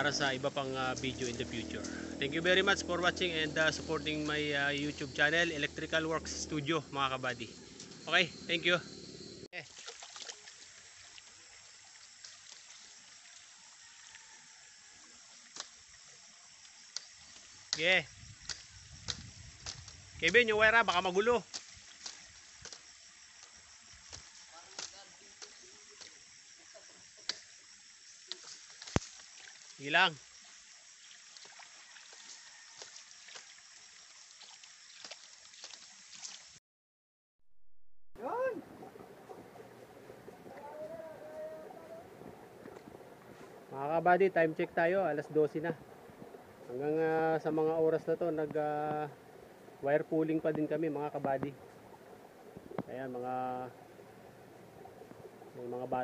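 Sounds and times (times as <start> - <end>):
outdoor background hiss: 0.0 - 32.0, 38.2 - 56.0
outdoor hiss: 2.4 - 8.9, 15.0 - 32.5.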